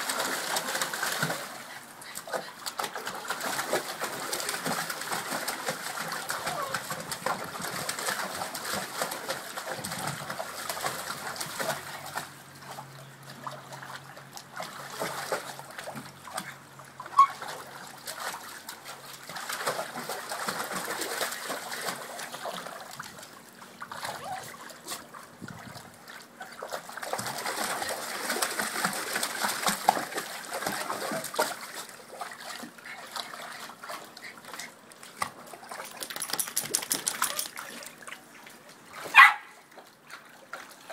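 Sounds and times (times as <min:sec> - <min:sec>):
water splashing in pool: 0:00.0 - 0:40.9.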